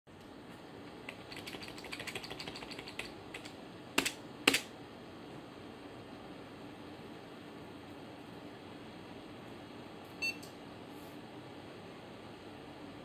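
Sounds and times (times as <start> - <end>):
keyboard keys clicking: 1.1 - 4.7.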